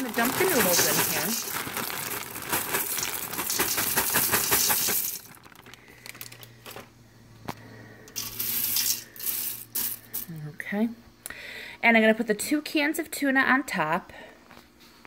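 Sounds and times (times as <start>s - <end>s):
dry noodles rattling into pot: 0.0s - 6.5s, 8.1s - 10.2s
noodles rustling: 0.0s - 6.9s.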